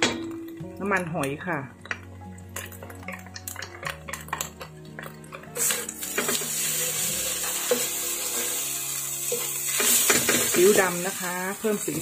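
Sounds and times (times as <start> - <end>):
noodles sizzling: 0.0 - 12.0
spatula scraping a wok: 5.6 - 12.0.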